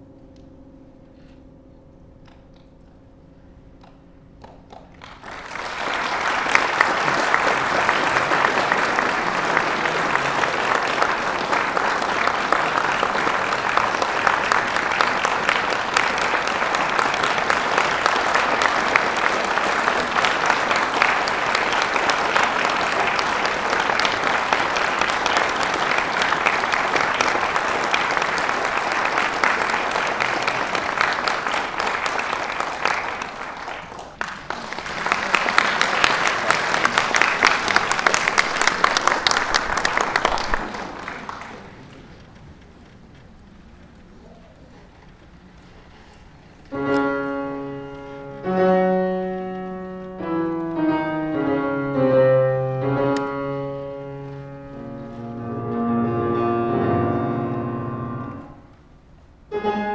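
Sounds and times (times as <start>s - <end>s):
audience applauding: 4.4s - 55.2s
grand piano notes: 46.6s - 59.9s.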